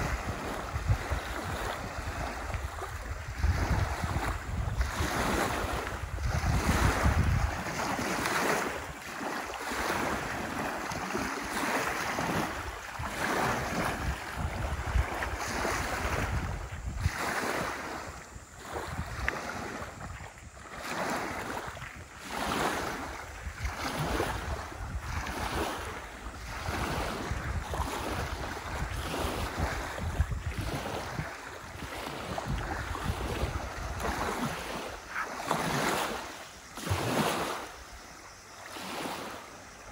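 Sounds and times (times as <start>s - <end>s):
wind buffeting microphone: 0.0s - 38.0s
waves lapping on gravel shore: 0.0s - 39.9s.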